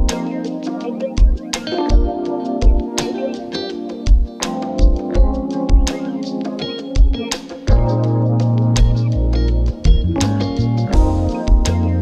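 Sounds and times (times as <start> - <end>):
deep kick drum beat: 0.0 - 0.2, 1.2 - 3.0, 4.1 - 5.9, 7.0 - 12.0
electronic backing music: 0.0 - 12.0
plucked guitar: 0.0 - 12.0.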